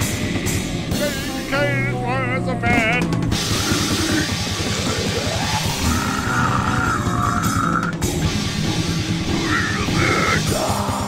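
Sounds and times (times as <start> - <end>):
distorted guitar noise: 2.9 - 10.7.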